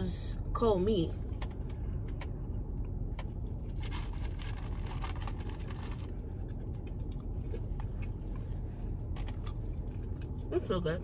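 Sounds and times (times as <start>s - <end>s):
car cabin hum: 0.0s - 11.0s
crunching of someone eating: 3.1s - 10.5s.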